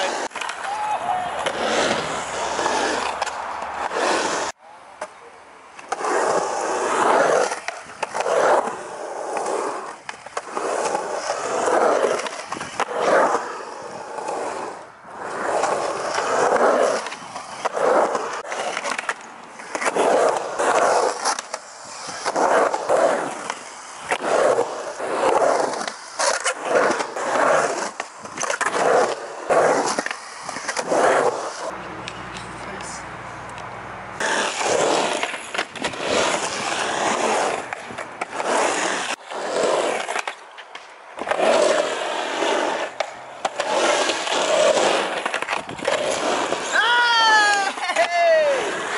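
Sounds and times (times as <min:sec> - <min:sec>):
skateboard wheels rolling on concrete: 0:00.0 - 0:48.9
skateboard clacks: 0:39.9 - 0:48.9.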